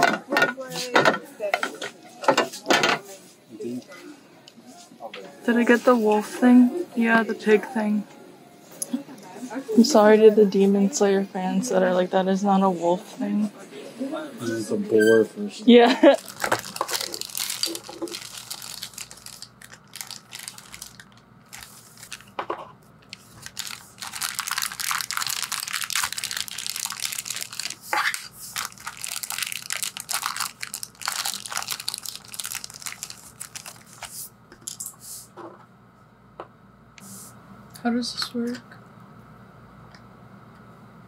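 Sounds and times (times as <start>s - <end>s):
plastic bag crinkling: 16.0s - 22.4s, 23.0s - 34.8s.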